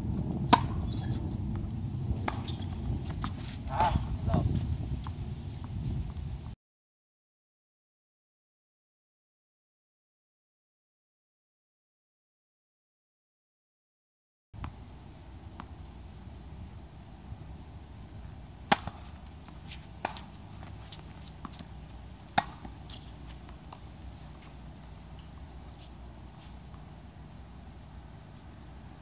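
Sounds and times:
steady high-pitched hiss: 0.0 - 6.6, 14.6 - 29.0
tennis ball struck by racket: 0.5 - 1.6, 2.2 - 4.1, 18.6 - 27.6
tennis ball bouncing: 0.5 - 4.1, 18.5 - 28.4.

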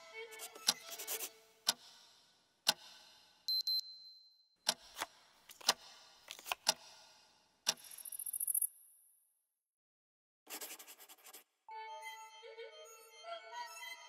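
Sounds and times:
clock ticking: 1.6 - 3.8, 4.6 - 6.0, 6.6 - 7.1
high electronic beep: 3.5 - 4.4.

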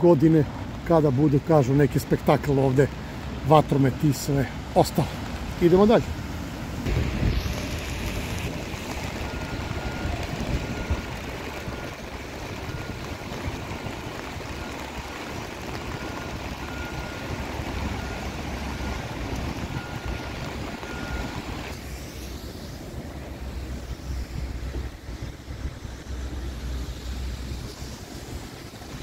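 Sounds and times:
low traffic rumble: 0.0 - 29.0
rain hiss on wet pavement: 0.0 - 29.0
wind buffeting microphone: 6.6 - 16.6.

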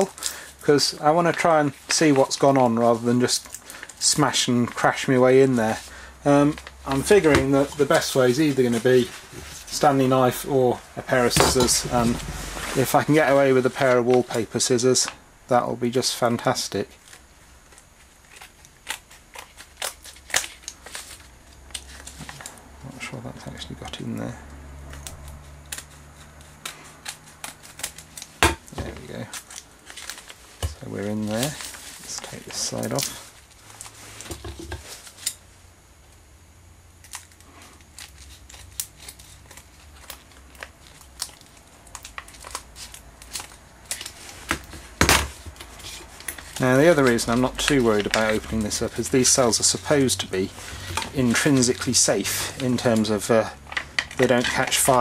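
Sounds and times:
scissors snipping foil: 18.3 - 22.5, 25.0 - 28.4, 37.0 - 44.2
foil pouch crinkling: 25.1 - 34.3, 37.0 - 55.0.

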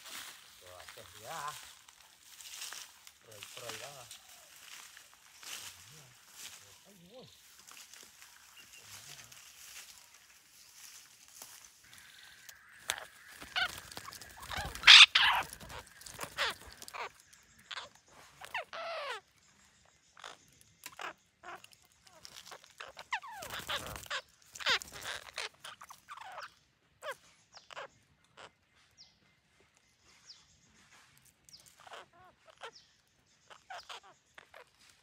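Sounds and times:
parakeets squawking: 2.5 - 5.7, 11.9 - 19.3, 20.2 - 28.6, 31.6 - 34.8.

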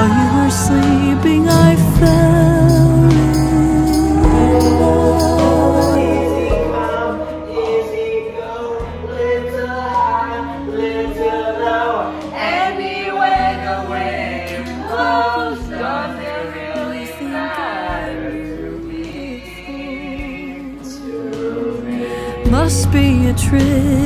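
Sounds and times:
steady bass beat: 0.0 - 6.6, 22.5 - 24.0
background pop music: 0.0 - 24.0
man and woman singing: 0.0 - 24.0.

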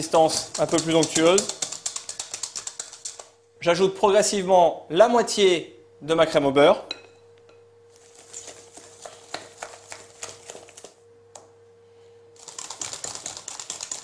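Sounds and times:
whisk clicking in metal bowl: 0.0 - 3.4.

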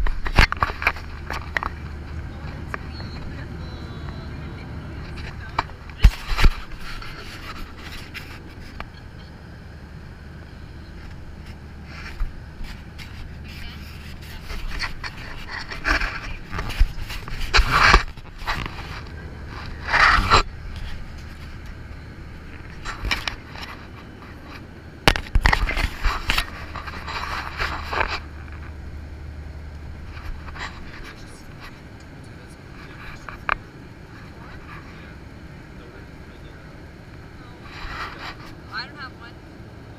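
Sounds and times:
camera handling scrapes and knocks: 0.0 - 1.8, 5.1 - 8.9, 11.4 - 21.7, 22.4 - 28.7
airliner cabin hum: 0.0 - 39.9.

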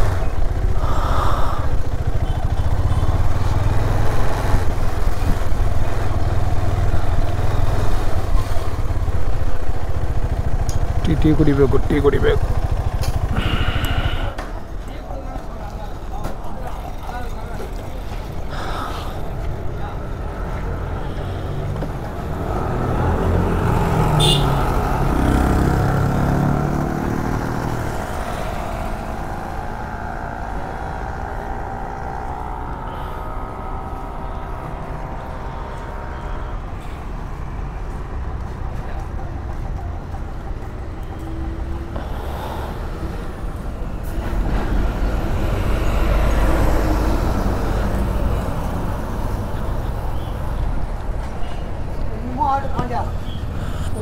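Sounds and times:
road traffic: 0.0 - 54.0
motorcycle engine revving: 21.9 - 36.8.

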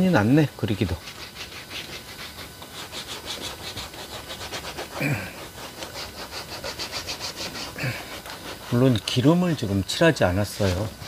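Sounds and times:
rag rubbing on canvas: 0.0 - 11.0.

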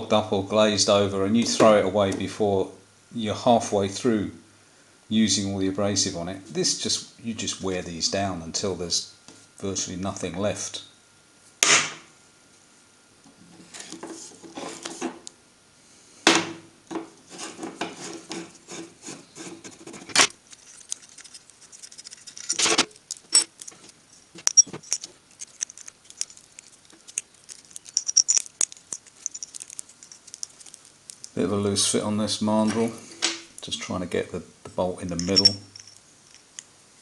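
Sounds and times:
metal tools clinking on steel bench: 23.2 - 23.7, 24.4 - 25.8, 27.8 - 30.3, 35.1 - 36.5.

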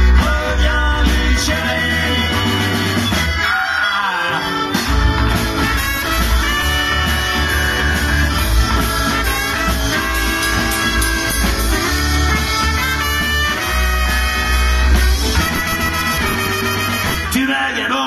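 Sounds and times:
live band playing boogie-blues: 0.0 - 18.0.

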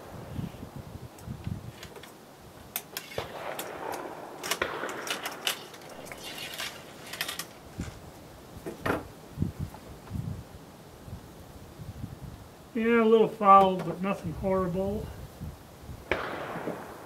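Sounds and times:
cleaning rod clicking and scraping: 4.4 - 8.0.

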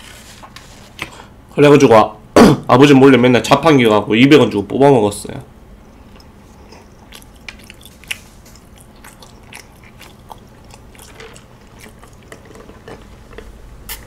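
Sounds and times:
chewing with soft crunches: 5.8 - 14.0
wet mouth clicks: 6.1 - 11.3.

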